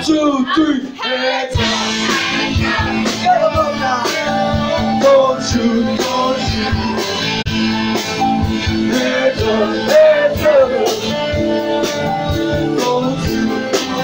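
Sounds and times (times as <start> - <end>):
drum kit beat: 0.8 - 14.0
electric guitars: 1.6 - 14.0.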